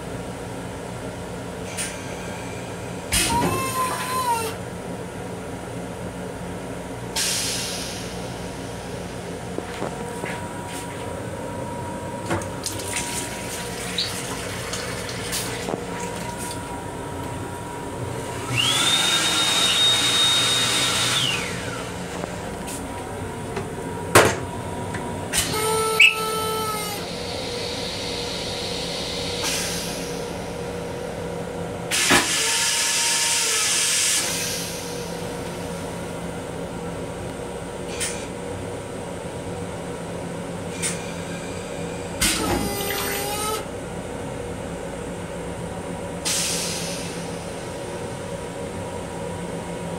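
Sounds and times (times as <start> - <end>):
moving railcar hum: 0.0 - 49.9
hand dryer whining: 3.2 - 4.6, 18.2 - 23.7
toilet flushing: 12.4 - 16.8, 18.2 - 22.2.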